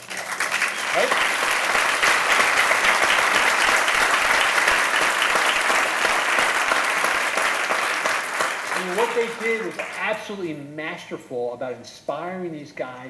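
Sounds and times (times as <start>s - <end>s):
audience clapping: 0.0s - 10.4s.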